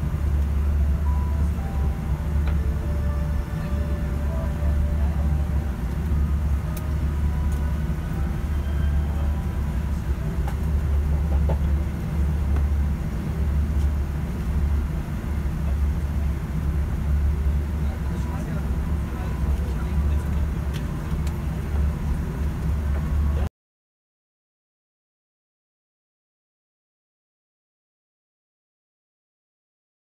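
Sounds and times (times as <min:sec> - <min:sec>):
airliner cabin drone: 0:00.0 - 0:23.5.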